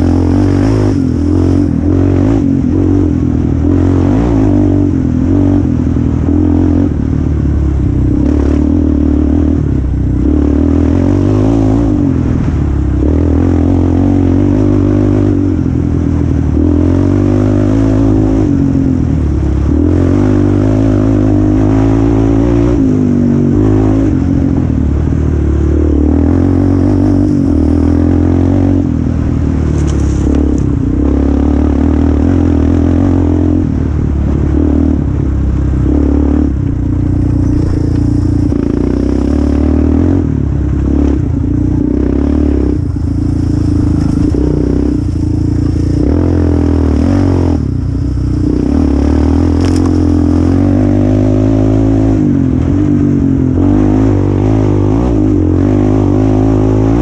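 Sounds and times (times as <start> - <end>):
quad engine revving: 0.0 - 7.0, 25.6 - 29.0, 35.8 - 57.0.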